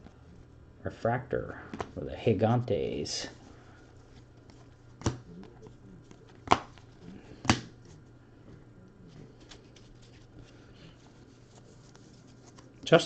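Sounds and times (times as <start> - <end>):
trading cards rustling: 9.0 - 13.0.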